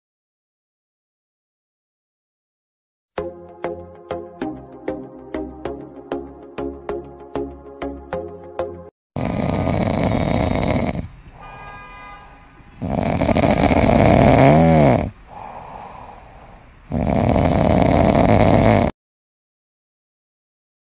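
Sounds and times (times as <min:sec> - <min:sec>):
loud snoring: 0:09.2 - 0:11.2, 0:12.8 - 0:19.0
quiet breaths: 0:09.3 - 0:18.8.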